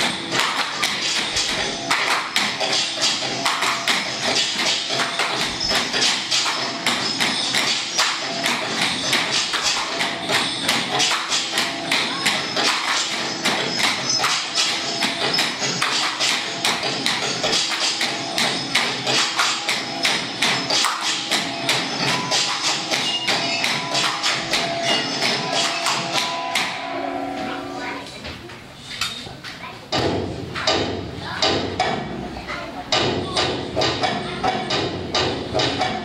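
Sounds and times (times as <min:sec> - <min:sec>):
bamboo poles clacking: 0:00.0 - 0:26.8
music: 0:00.0 - 0:28.0.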